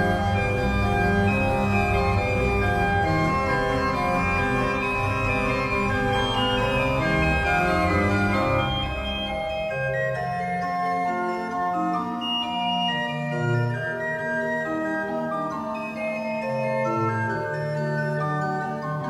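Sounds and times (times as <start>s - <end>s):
deep bass notes: 0.0s - 9.7s
slow keyboard chords: 0.0s - 19.0s.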